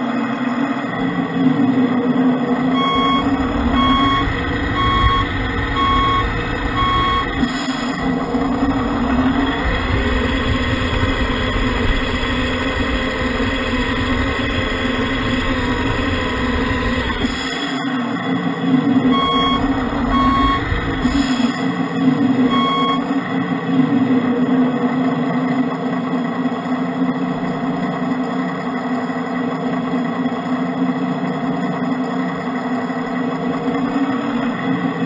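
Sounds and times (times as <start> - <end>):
model truck engine drone: 0.0 - 35.0
electronic reversing beeper: 2.7 - 8.2, 19.0 - 21.7, 22.4 - 23.2.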